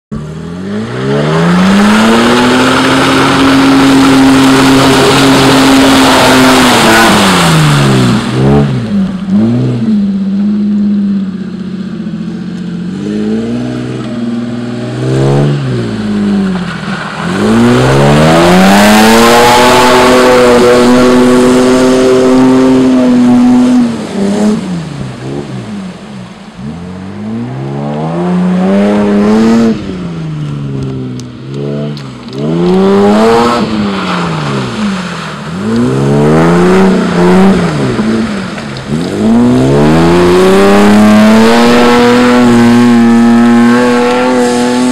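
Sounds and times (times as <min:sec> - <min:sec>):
engine revving hard: 0:00.5 - 0:10.0, 0:17.2 - 0:25.6, 0:26.6 - 0:30.1, 0:31.5 - 0:44.9.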